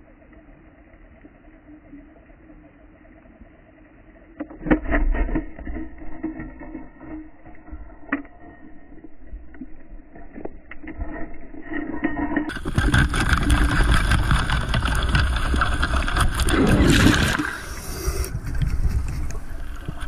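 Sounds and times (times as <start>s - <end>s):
muffled underwater knocks and thuds: 12.5s - 17.4s.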